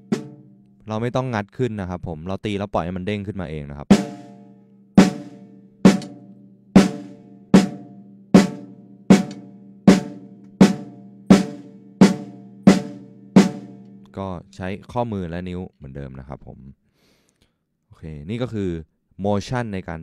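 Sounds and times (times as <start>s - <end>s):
snare drum hits: 5.0s - 6.2s.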